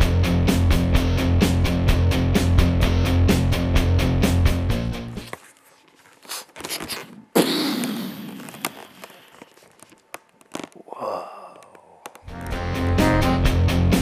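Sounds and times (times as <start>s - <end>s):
rock music: 0.0s - 5.2s, 12.3s - 14.0s
balloons squeaking and rubbing: 5.2s - 10.9s
balloon bursting: 6.9s - 9.6s.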